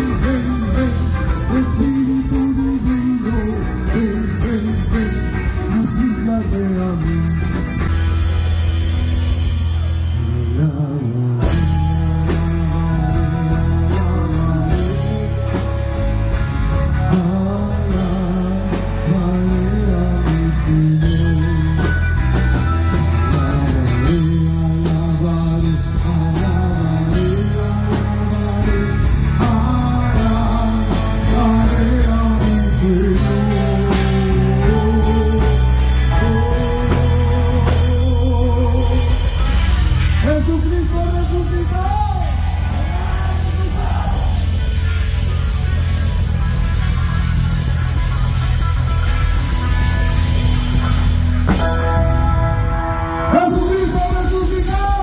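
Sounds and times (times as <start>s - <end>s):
person singing: 0.0s - 7.6s, 10.2s - 22.3s, 23.2s - 44.8s
rock band playing: 0.0s - 55.0s.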